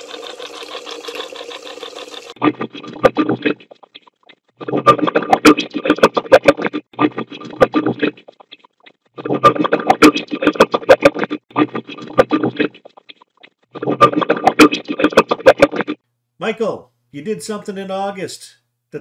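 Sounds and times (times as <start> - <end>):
garbled voice-like fragments: 2.3 - 16.0.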